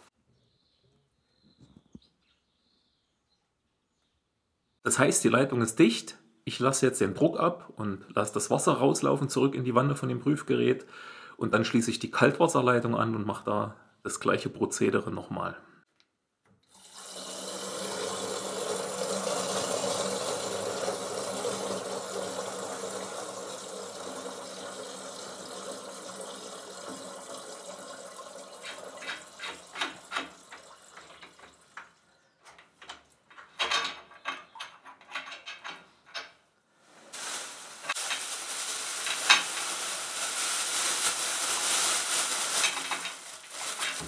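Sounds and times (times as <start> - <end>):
water rushing into tank: 16.7 - 31.8
irregular clicks and knocks: 28.6 - 36.5.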